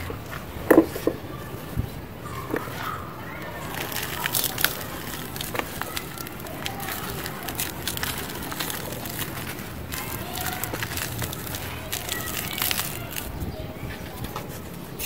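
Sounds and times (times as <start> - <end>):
hands crumbling dry cement: 3.5 - 13.4.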